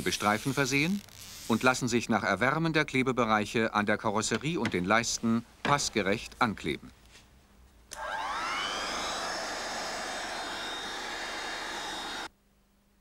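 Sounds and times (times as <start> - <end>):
hot-air gun fan whining: 7.9 - 12.3.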